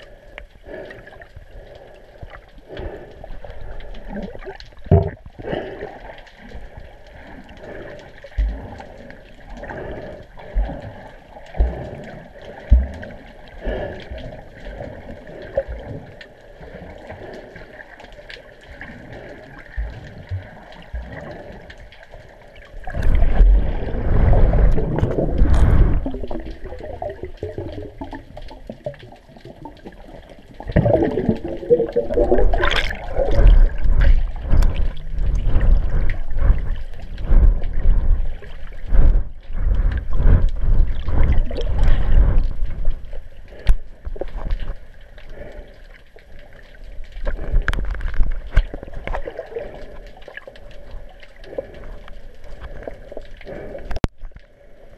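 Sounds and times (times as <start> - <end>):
muffled water sloshing: 0.0 - 54.9
bubbling underwater: 3.9 - 5.9, 22.7 - 44.4.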